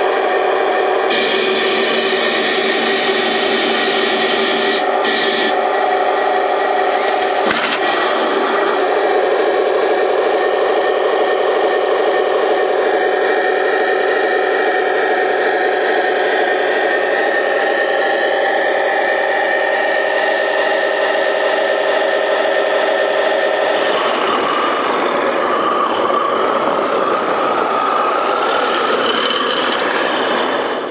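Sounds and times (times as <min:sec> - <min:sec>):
simulated tank engine idling: 0:00.0 - 0:30.9.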